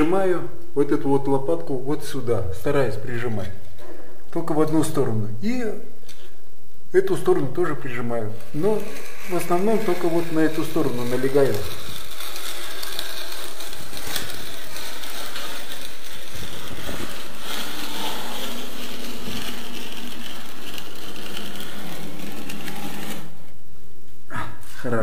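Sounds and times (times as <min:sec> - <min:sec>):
trowel scraping wet plaster: 0:08.5 - 0:23.4.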